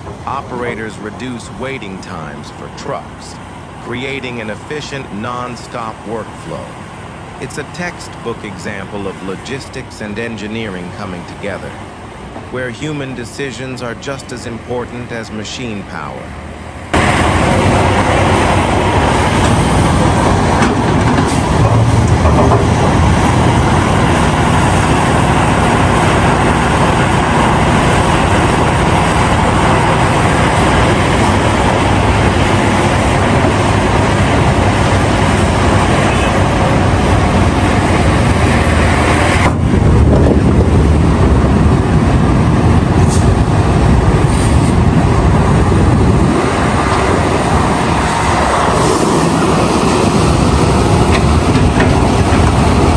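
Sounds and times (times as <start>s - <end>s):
excavator diesel engine rumbling: 0.0s - 52.9s.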